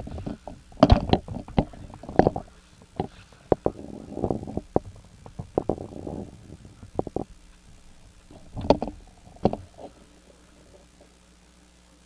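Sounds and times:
sharp knocks and bumps: 0.0 - 10.0
faint steady hum: 0.0 - 12.0.

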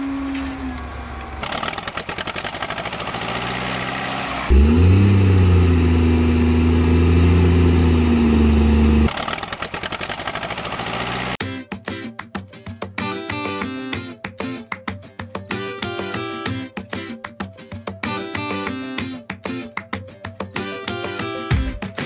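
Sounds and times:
diesel-like engine clatter: 0.0 - 4.5
engine rising in pitch: 2.9 - 9.1.

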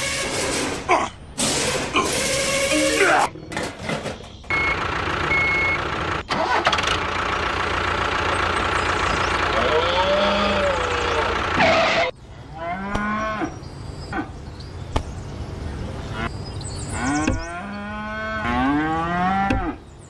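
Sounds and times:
engine running: 4.4 - 12.2
cows mooing: 9.6 - 14.3, 17.0 - 19.8.

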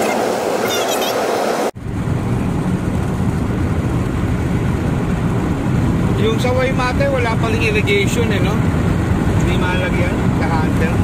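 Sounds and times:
road and wind noise in car: 0.0 - 11.0.

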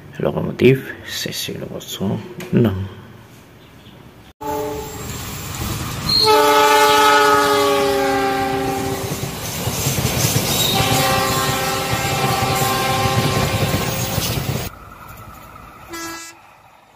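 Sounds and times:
locomotive horn blasts: 4.4 - 5.1, 6.1 - 9.2, 10.7 - 14.0, 15.9 - 16.4
train wheels rumbling on rails: 4.7 - 16.9.

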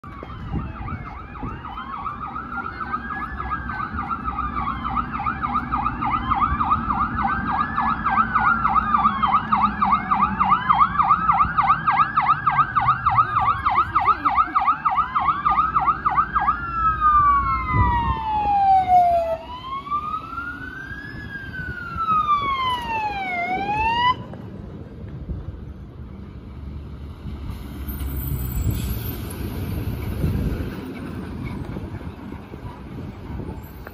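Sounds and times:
siren yelp: 0.0 - 24.3
siren wail: 0.0 - 24.4
truck engine rumble: 0.0 - 33.9.

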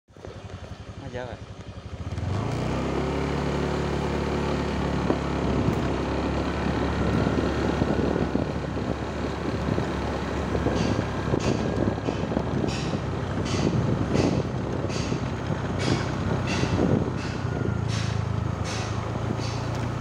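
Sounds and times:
motorcycle engine running: 0.1 - 20.0
wind rushing over microphone: 4.9 - 20.0.

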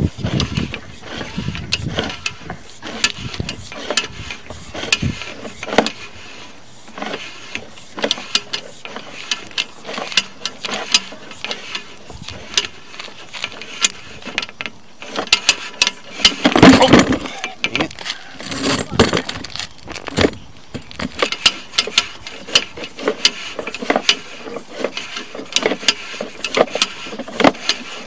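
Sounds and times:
cable clicking and rattling: 6.9 - 28.0.

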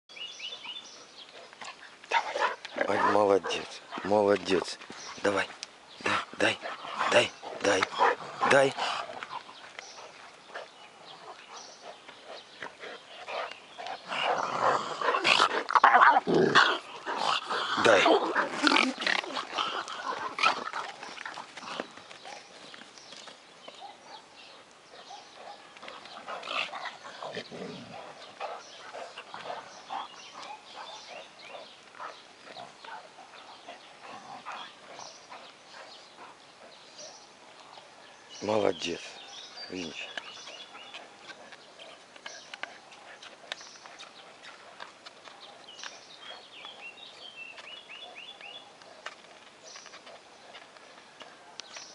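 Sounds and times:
bird chirping: 0.1 - 51.9
dog low long growl: 13.8 - 21.0, 26.2 - 30.7.

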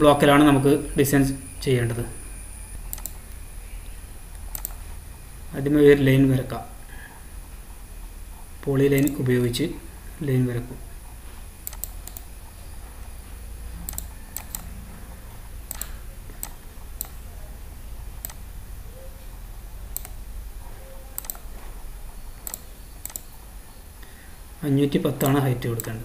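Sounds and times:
low steady hum: 0.0 - 26.0
mouse and keyboard clicks: 2.9 - 3.2, 4.3 - 4.8, 11.6 - 12.3, 13.9 - 14.7, 15.7 - 17.2, 19.9 - 20.2, 21.1 - 21.5, 22.4 - 23.3.

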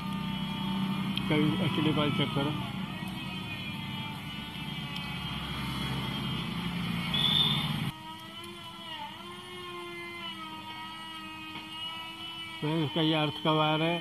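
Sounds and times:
vehicle engine running: 0.0 - 7.9.

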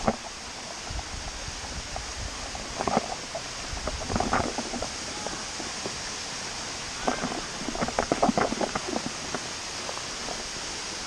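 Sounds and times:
close splashing bursts: 0.0 - 11.0
waterfall splashing into pool: 0.0 - 11.0.

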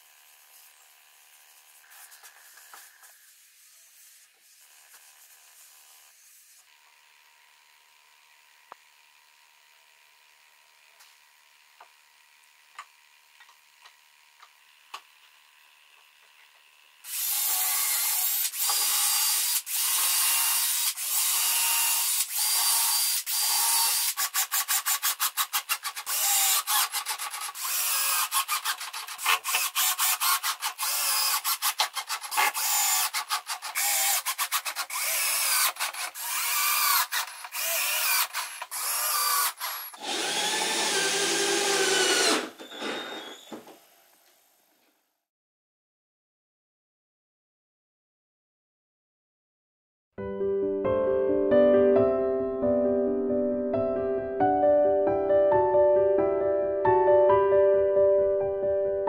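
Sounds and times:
cordless drill boring into wood: 0.0 - 44.7.

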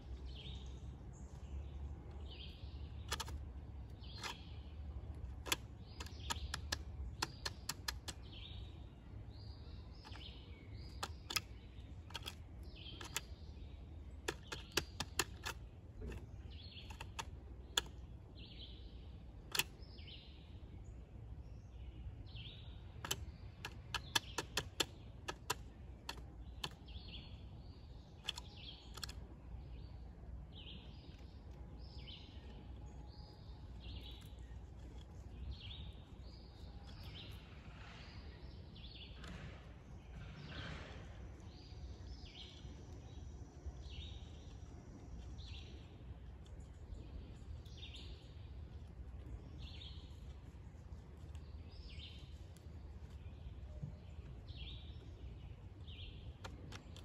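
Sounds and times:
woodpecker knocking on wood: 3.1 - 8.8, 10.0 - 18.1, 23.0 - 27.2.

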